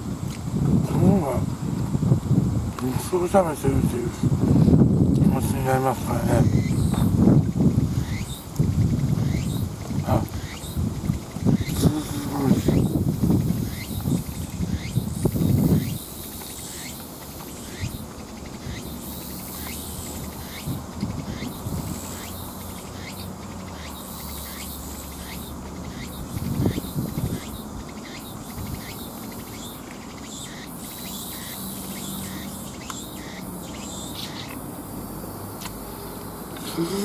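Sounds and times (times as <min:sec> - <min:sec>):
insects chirping: 0:00.0 - 0:37.0.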